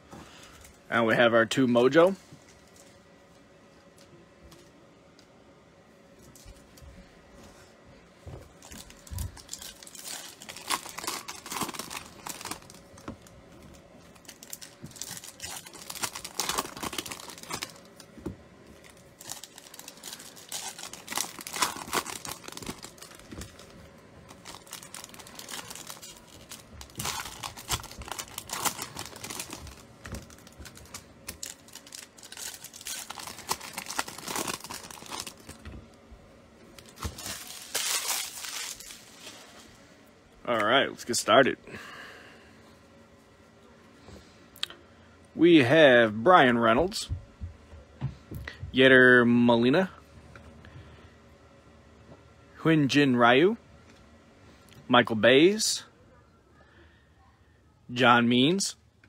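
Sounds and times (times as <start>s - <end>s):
foil wrappers crinkling and tearing: 8.5s - 18.1s, 18.7s - 35.8s, 36.7s - 39.8s.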